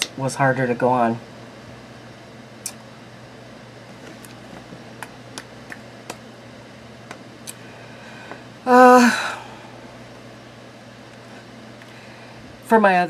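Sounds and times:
woman humming: 8.6s - 9.6s.

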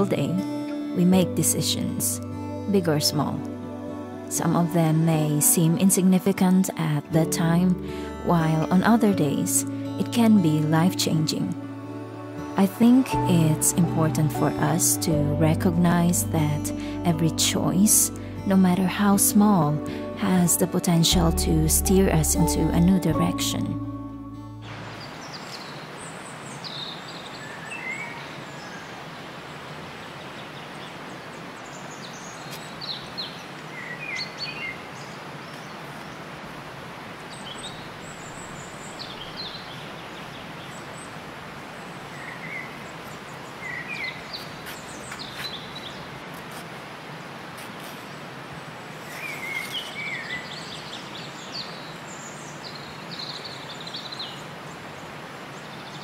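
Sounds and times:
steady background hiss: 24.6s - 56.0s
birds chirping: 24.7s - 36.5s, 37.2s - 46.3s, 48.0s - 56.0s.

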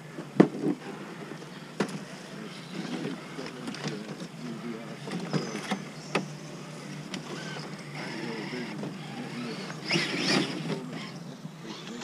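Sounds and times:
faint voices talking: 0.0s - 12.0s
electric motor whine: 5.3s - 12.0s.

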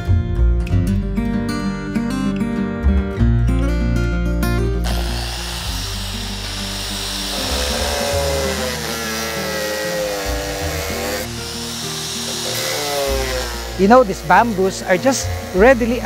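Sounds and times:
guitar background music: 0.0s - 16.0s
angle grinder cutting: 4.8s - 16.0s.

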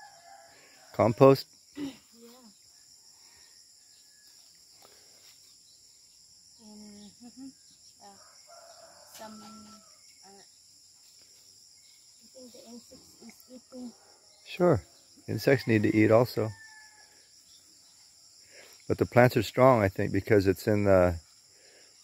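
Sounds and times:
distant rooster crowing: 0.0s - 1.2s, 8.1s - 10.1s, 15.3s - 17.3s
crickets chirring: 0.0s - 22.0s.

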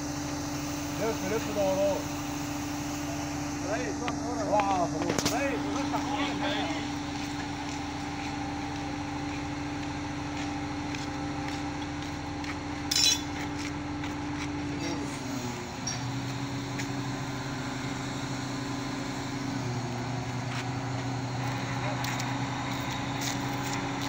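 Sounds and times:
crane diesel engine running: 0.0s - 24.0s
sharp metallic clink: 12.9s - 13.4s.

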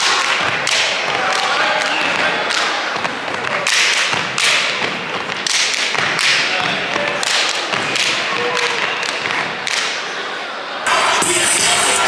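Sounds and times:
hand claps: 5.4s - 6.5s.

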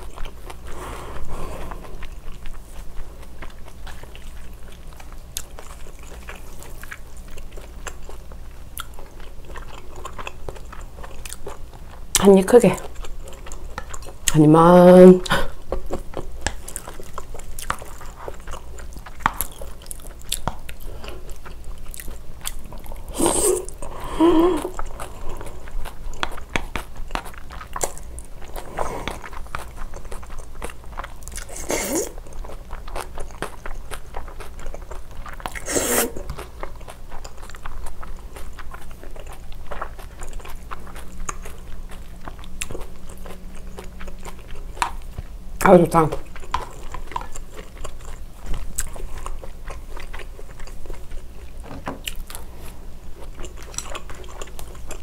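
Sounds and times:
chewing with wet crunches: 0.0s - 55.0s
noodle slurping: 31.4s - 32.2s, 35.5s - 36.4s.

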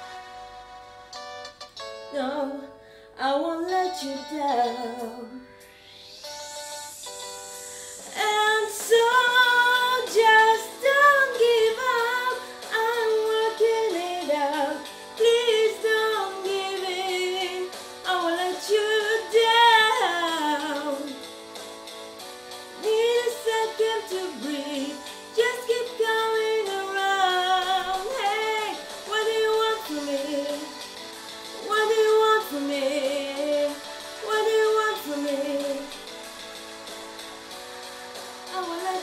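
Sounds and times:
woman singing unaccompanied: 2.1s - 5.5s, 8.1s - 21.2s, 22.8s - 30.9s, 31.6s - 36.0s, 38.5s - 39.0s.

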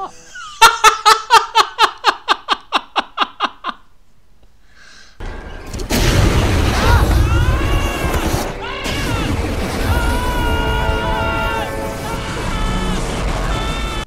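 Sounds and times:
man laughing heartily: 0.0s - 3.9s
flamethrower rushing blast: 5.7s - 14.0s.

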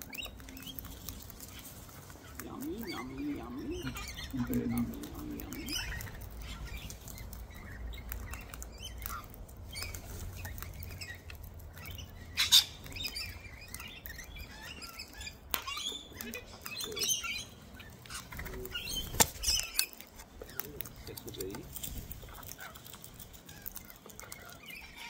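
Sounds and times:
bird squawk: 0.0s - 21.6s, 22.2s - 25.0s
beak clicks and crunches: 0.0s - 25.0s
bird chirps: 0.0s - 25.0s
wings flapping: 18.2s - 24.2s.

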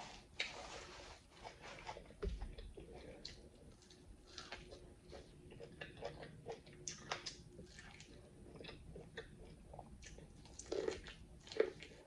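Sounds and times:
wet chewing of corn: 0.0s - 12.0s.

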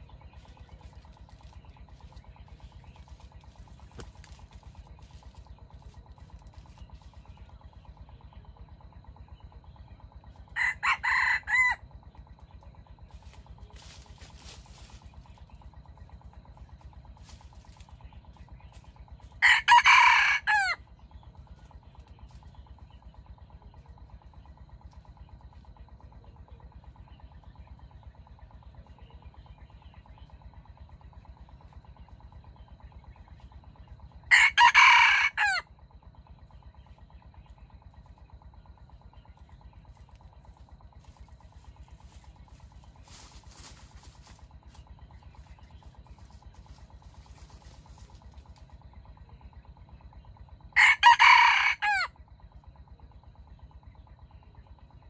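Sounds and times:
rooster crowing: 10.6s - 11.8s, 19.4s - 20.8s, 34.3s - 35.7s, 50.8s - 52.2s.

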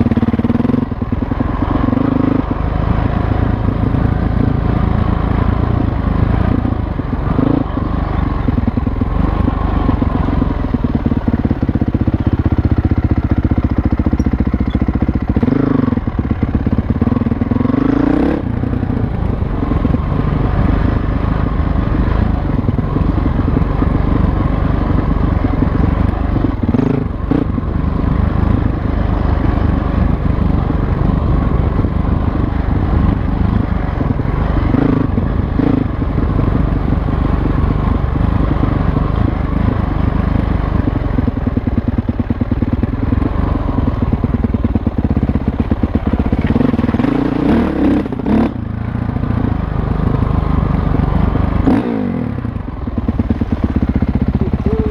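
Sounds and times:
dirt bike engine: 0.0s - 54.9s.

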